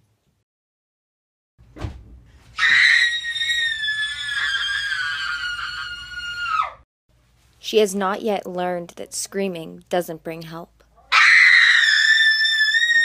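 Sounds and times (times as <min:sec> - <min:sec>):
brief thump: 0:01.7 - 0:02.2
girl screaming: 0:02.6 - 0:06.8, 0:11.1 - 0:13.0.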